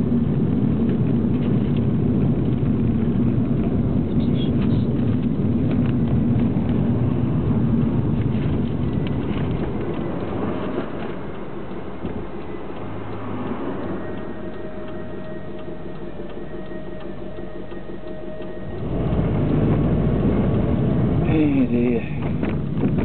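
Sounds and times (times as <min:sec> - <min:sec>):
engine and tyre rumble: 0:00.0 - 0:23.0
turn indicator ticking: 0:07.7 - 0:23.0.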